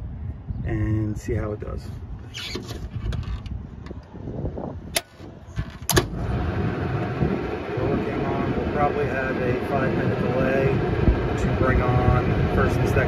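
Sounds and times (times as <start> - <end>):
low rumble: 3.4 - 13.0
air conditioner whooshing hum: 4.3 - 13.0.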